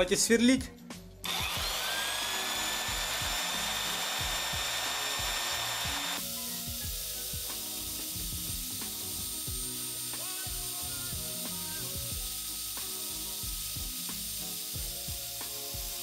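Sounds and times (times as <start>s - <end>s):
drill press whining: 1.2s - 6.2s
drill bit scraping metal rod: 1.3s - 6.2s.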